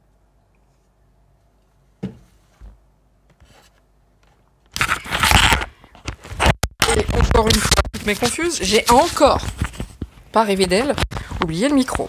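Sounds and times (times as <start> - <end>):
scraping and rubbing on microphone: 4.8 - 12.0.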